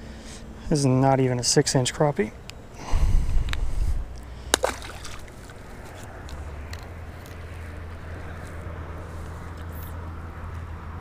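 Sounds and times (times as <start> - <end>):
steady low rumble: 0.0 - 11.0
water sloshing around boat: 4.4 - 6.2.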